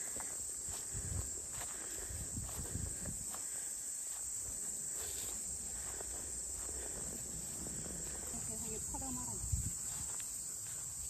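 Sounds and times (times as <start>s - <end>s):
footsteps on grass: 0.0s - 11.0s
insects chirring: 0.0s - 11.0s.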